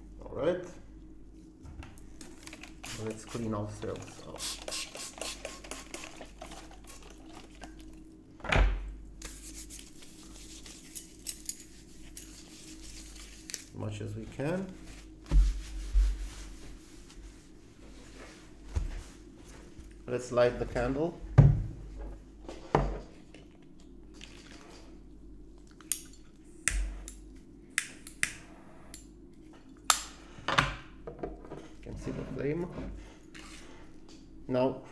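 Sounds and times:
spray bottle squirting: 4.3s - 6.2s
gloved hands rubbing together: 9.2s - 13.7s.

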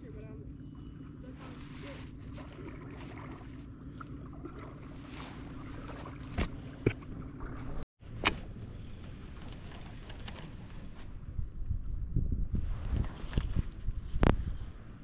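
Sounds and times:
water moving around a kayak: 1.2s - 7.8s
wind on microphone: 8.6s - 15.0s.

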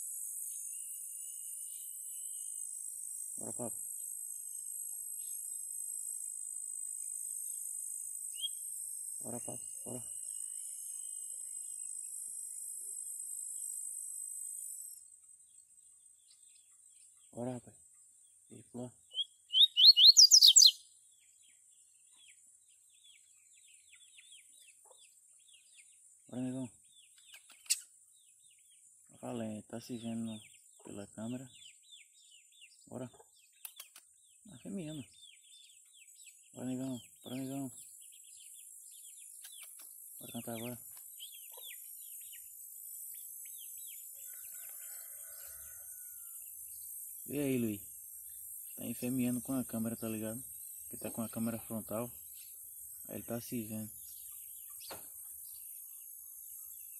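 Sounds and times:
bird chirping: 0.0s - 56.9s
bird whistling rising notes: 19.5s - 20.8s.

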